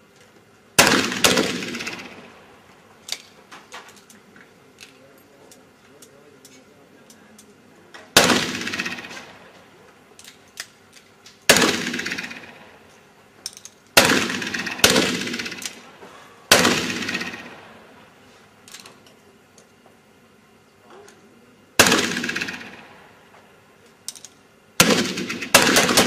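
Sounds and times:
pistol shots echoing: 0:00.8 - 0:02.4, 0:08.1 - 0:09.5, 0:11.5 - 0:12.7, 0:14.0 - 0:15.9, 0:16.5 - 0:17.8, 0:21.8 - 0:23.0, 0:24.8 - 0:26.0.

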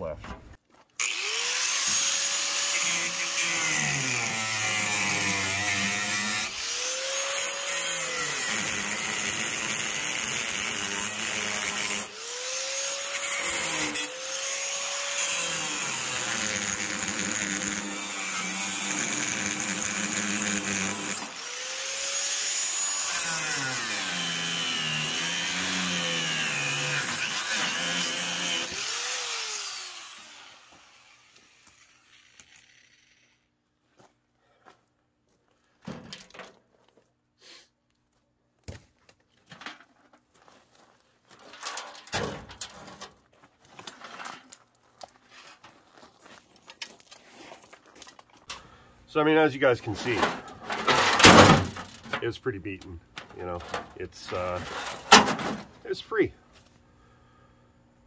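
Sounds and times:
angle grinder cutting metal: 0:01.0 - 0:33.5, 0:53.4 - 0:55.5.

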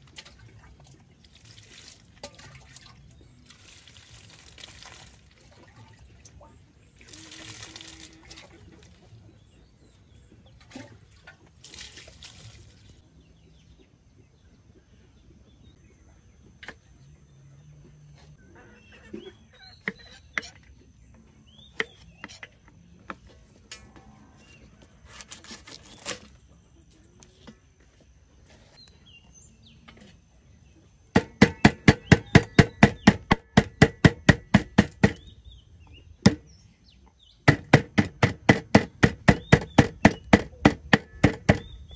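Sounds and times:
water pouring splash: 0:01.2 - 0:05.7, 0:11.6 - 0:12.9
knife chopping on wooden board: 0:31.2 - 0:35.2, 0:37.5 - 0:41.7.

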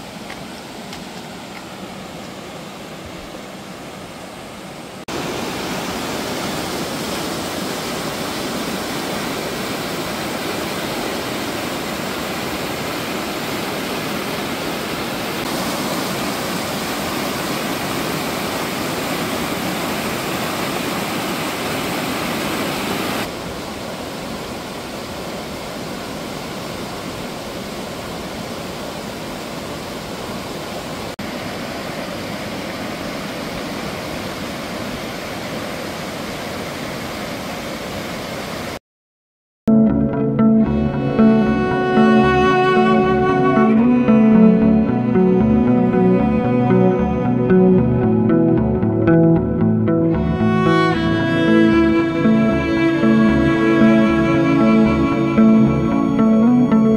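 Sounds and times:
water rushing over rocks: 0:00.0 - 0:38.8.

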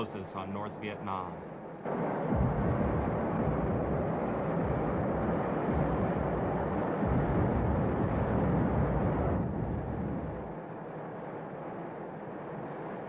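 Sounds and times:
low rumbling roar: 0:01.9 - 0:10.6.

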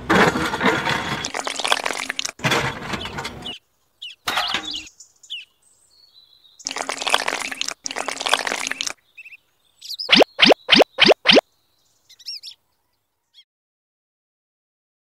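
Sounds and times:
wet cement pouring and splattering: 0:01.0 - 0:02.4, 0:06.7 - 0:09.0.

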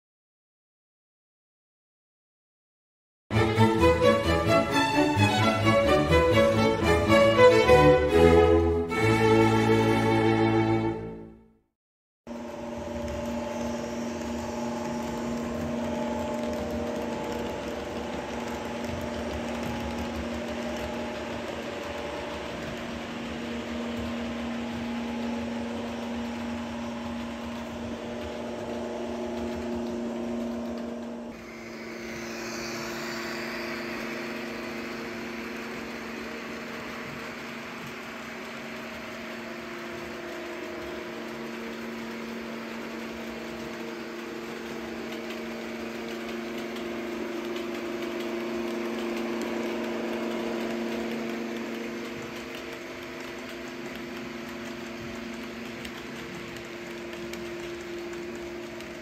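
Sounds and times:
model locomotive engine drone: 0:03.3 - 0:11.5, 0:12.3 - 0:59.0
hiss: 0:31.4 - 0:59.0.

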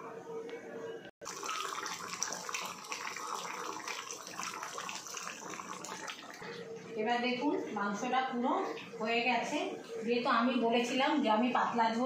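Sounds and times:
curry bubbling and sizzling: 0:01.2 - 0:06.7.

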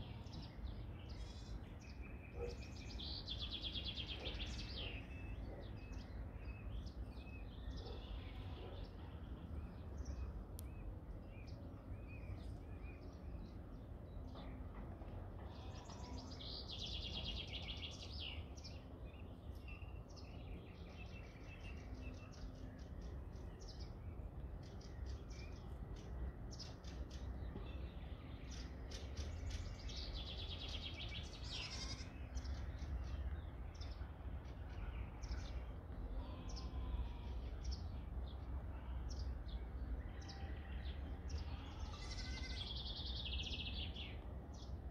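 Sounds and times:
songbirds chirping: 0:00.0 - 0:44.9
goat bleating: 0:31.4 - 0:32.2, 0:41.9 - 0:42.6.

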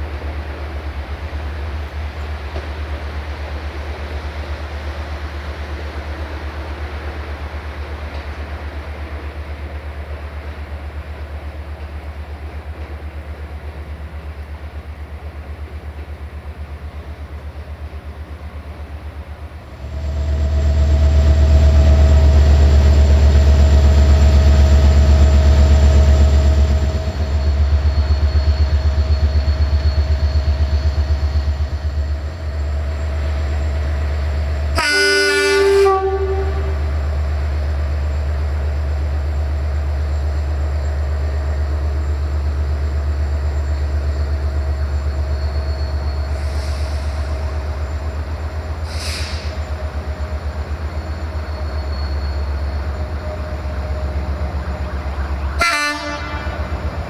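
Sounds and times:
diesel locomotive engine rumbling: 0:00.0 - 0:57.0
train horn blast: 0:34.7 - 0:37.0, 0:55.4 - 0:56.8.

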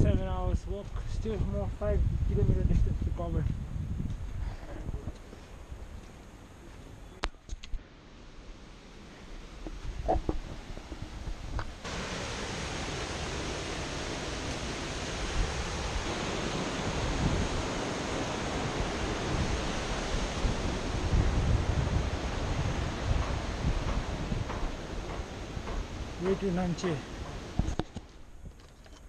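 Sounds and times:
wind buffeting microphone: 0:00.0 - 0:06.0, 0:09.4 - 0:28.6
stream rushing over rocks: 0:11.5 - 0:27.8.

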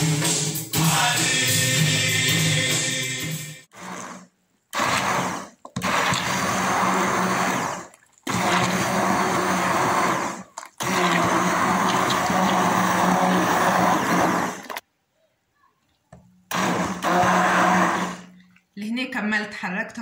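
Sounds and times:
immersion blender whirring: 0:03.7 - 0:14.8, 0:16.5 - 0:18.4.

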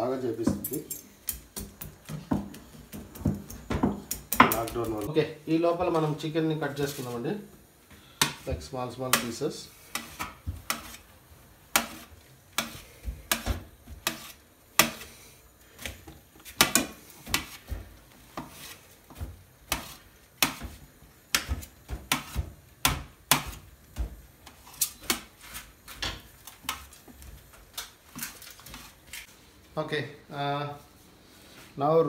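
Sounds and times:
knife chopping on metal plate: 0:09.1 - 0:11.0, 0:11.7 - 0:15.1, 0:16.5 - 0:26.9.

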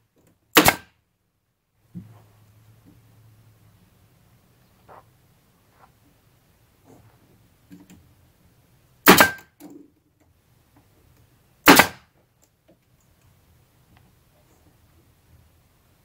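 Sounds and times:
pneumatic stapler firing: 0:00.5 - 0:00.9, 0:09.0 - 0:09.5, 0:11.6 - 0:12.0.

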